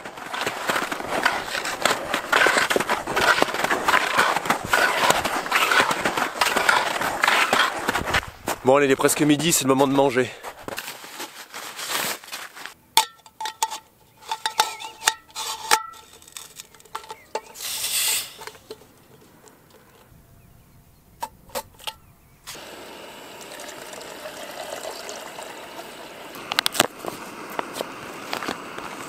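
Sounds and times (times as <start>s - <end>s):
water pouring into pot: 22.6s - 26.4s.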